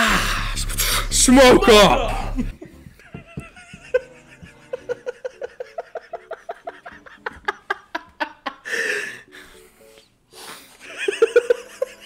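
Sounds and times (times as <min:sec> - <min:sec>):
man laughing hard: 0:01.7 - 0:09.1, 0:10.8 - 0:12.0
wheezing breath: 0:08.6 - 0:10.8.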